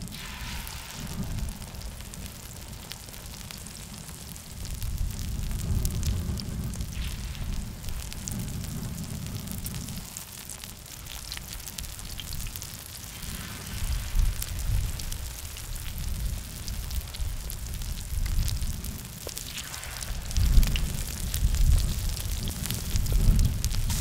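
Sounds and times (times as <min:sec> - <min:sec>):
low rumble: 0:00.0 - 0:03.6
batter frying in oil: 0:00.0 - 0:24.0.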